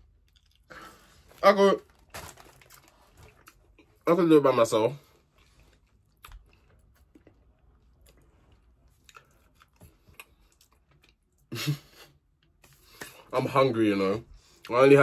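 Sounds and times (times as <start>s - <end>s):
person chewing food: 0.0s - 1.3s, 2.4s - 4.0s, 5.1s - 11.5s.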